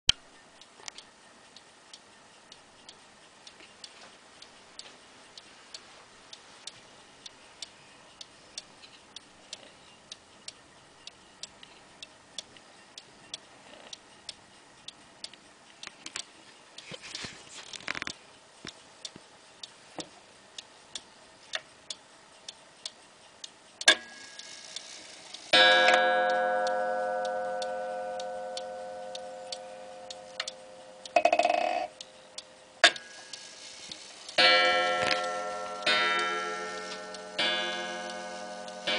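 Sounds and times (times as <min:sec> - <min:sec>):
pendulum clock ticking: 0:18.7 - 0:38.9.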